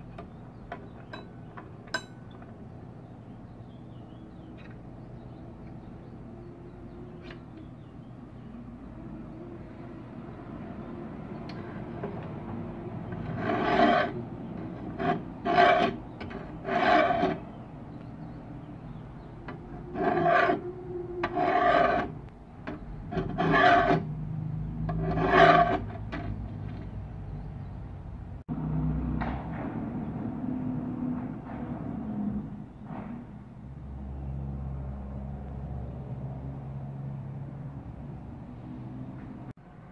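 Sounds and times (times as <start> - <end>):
hand file rasping on steel: 13.0 - 17.5, 19.5 - 22.3, 23.0 - 24.1, 24.8 - 26.1.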